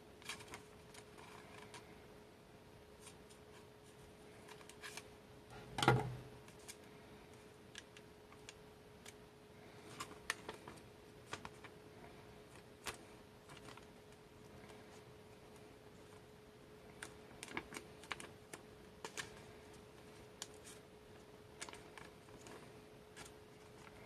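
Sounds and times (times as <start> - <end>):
paper rustling and creasing: 0.2 - 1.9, 3.0 - 5.1, 8.4 - 11.8, 12.5 - 16.3, 16.9 - 24.0.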